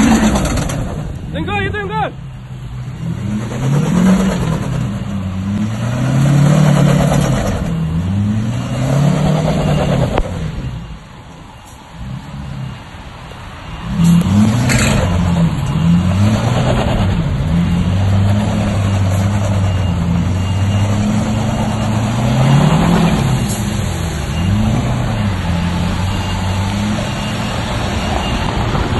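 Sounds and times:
pickup engine revving hard: 0:03.0 - 0:10.6, 0:13.9 - 0:27.9.

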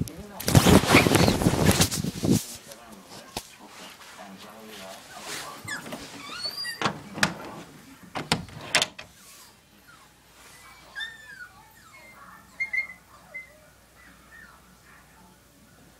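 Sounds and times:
small dog whining: 0:05.7 - 0:06.8, 0:09.8 - 0:14.7
knocks and rattles: 0:06.8 - 0:09.1.

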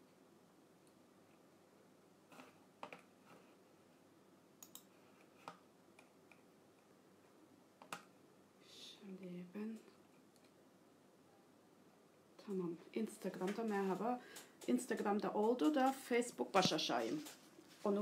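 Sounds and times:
faint sharp clicks: 0:04.6 - 0:04.9.

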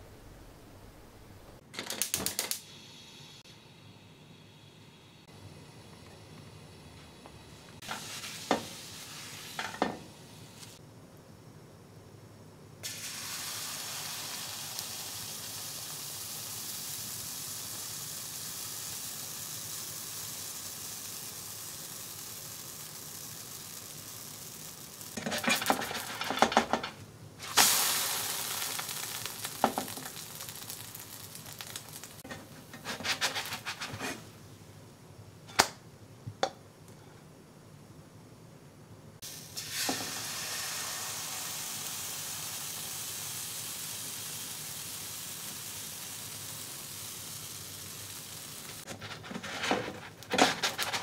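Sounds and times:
batter sizzling in frying pan: 0:07.8 - 0:10.8, 0:12.8 - 0:34.4, 0:39.2 - 0:51.0
spatula scraping pan: 0:25.2 - 0:26.9, 0:32.2 - 0:34.3, 0:48.9 - 0:51.0.

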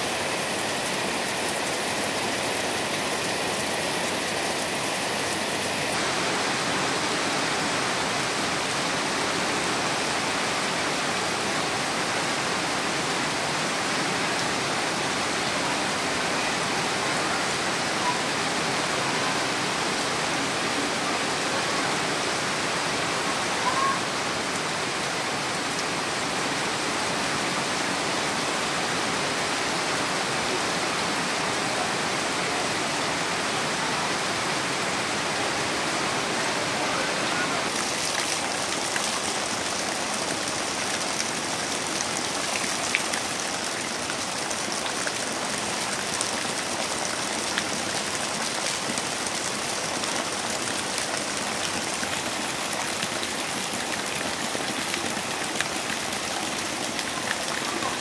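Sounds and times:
runoff water running: 0:00.0 - 0:06.8, 0:36.6 - 0:58.0
heavy rain: 0:00.0 - 0:58.0.

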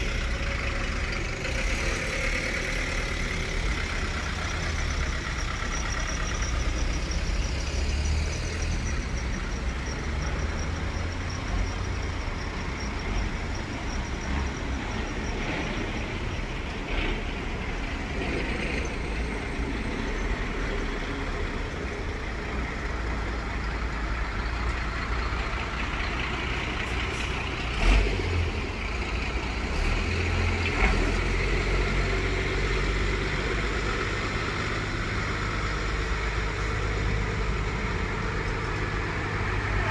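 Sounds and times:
diesel trucks passing: 0:00.0 - 0:39.9.

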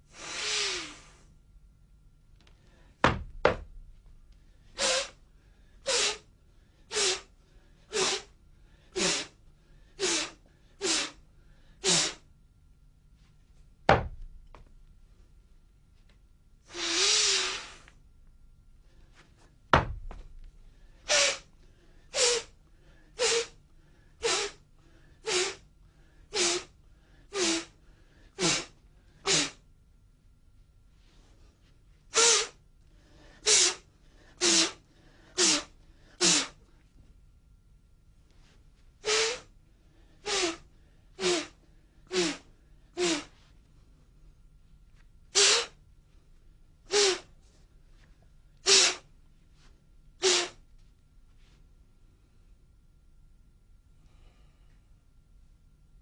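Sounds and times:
short forceful breaths: 0:00.1 - 0:01.3
sharp thuds: 0:19.7 - 0:20.3.

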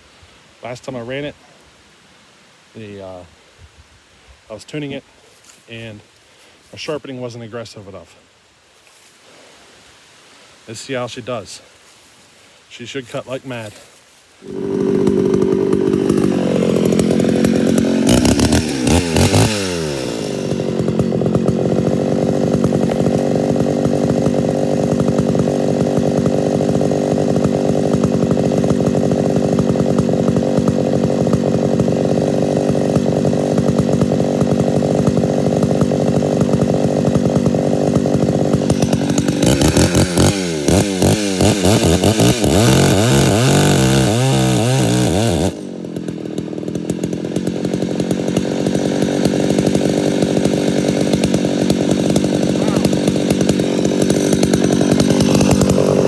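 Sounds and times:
chainsaw cutting log: 0:13.1 - 0:56.0
chainsaw running: 0:13.1 - 0:56.0.

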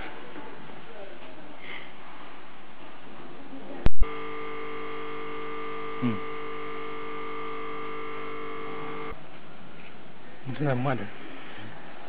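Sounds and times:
electrical buzz: 0:03.9 - 0:09.2.

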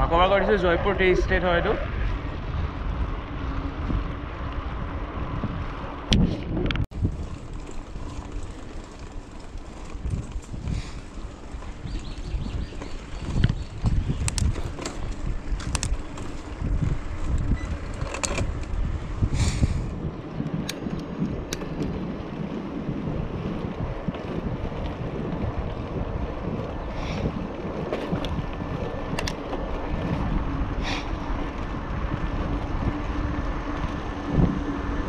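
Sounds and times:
low rush of riding: 0:00.0 - 0:35.0
wind buffeting microphone: 0:00.0 - 0:35.0
sharp clicks and rattles: 0:12.6 - 0:18.8, 0:20.4 - 0:22.0, 0:27.6 - 0:30.4.

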